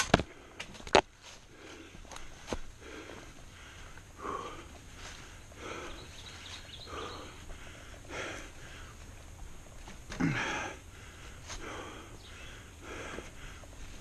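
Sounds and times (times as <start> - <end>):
person breathing hard: 0.2 - 9.3, 10.2 - 14.0
grunt: 10.1 - 10.8.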